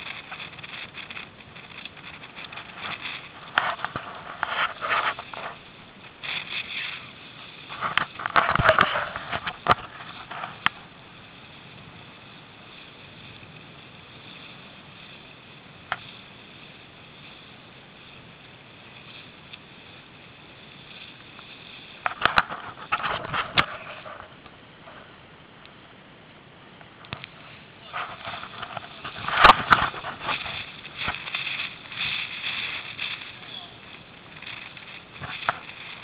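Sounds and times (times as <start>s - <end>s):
camera rubbing on jacket: 0.0s - 10.7s, 20.7s - 25.1s, 27.2s - 36.0s
steady hiss: 0.0s - 36.0s.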